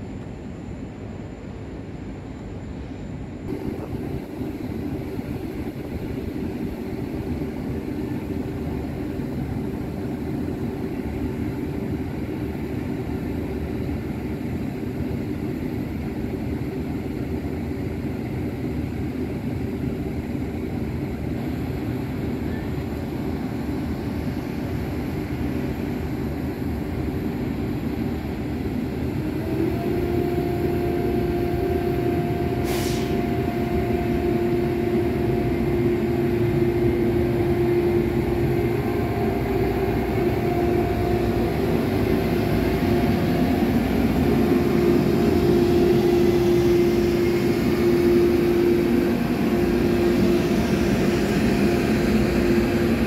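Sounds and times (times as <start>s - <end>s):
electric locomotive humming: 0.0s - 53.0s
higher electric tone: 30.6s - 53.0s.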